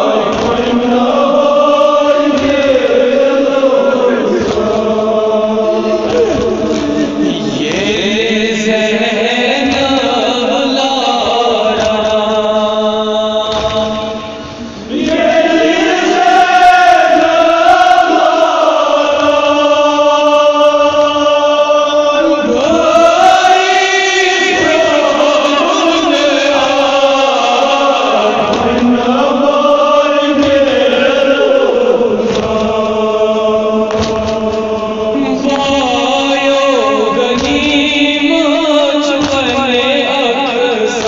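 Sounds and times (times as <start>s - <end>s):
men chanting a lament: 0.0s - 41.0s.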